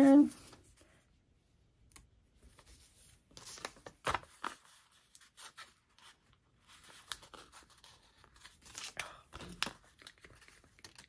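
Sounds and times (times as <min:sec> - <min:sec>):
paper rustling and peeling: 0:02.4 - 0:11.0.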